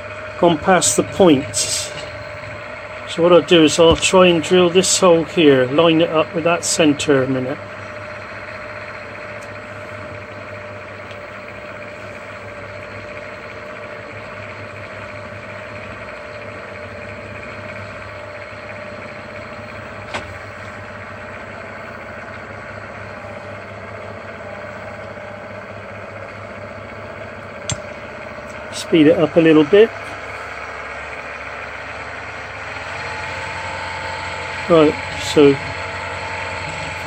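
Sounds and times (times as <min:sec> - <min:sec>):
mill-drill motor hum and whine: 0:00.0 - 0:37.0
sharp click: 0:27.6 - 0:27.9.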